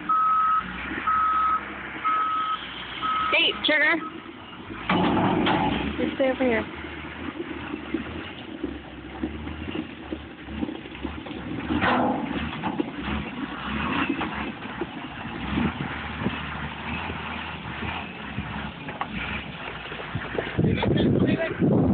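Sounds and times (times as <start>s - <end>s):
loader engine running: 0.0s - 21.9s.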